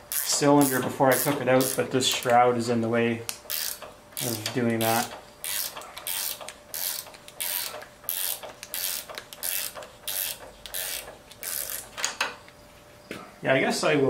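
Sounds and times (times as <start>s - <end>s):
ratchet wrench clicking: 0.1s - 2.3s, 3.5s - 12.2s.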